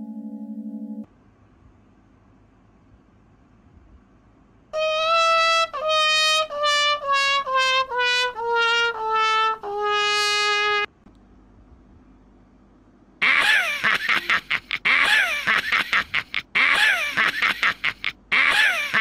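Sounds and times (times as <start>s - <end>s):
brass instrument descending run: 4.8s - 10.9s.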